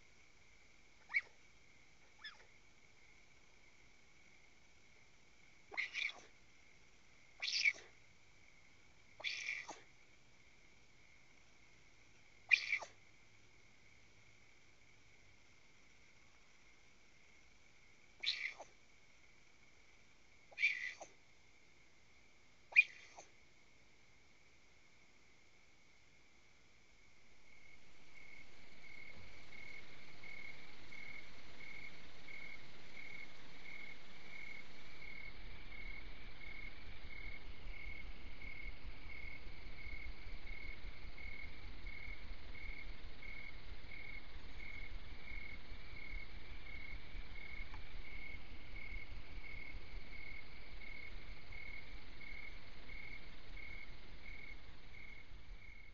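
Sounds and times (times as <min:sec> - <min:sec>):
crickets chirping: 0:00.0 - 0:55.9
faint low rumble: 0:00.0 - 0:55.9.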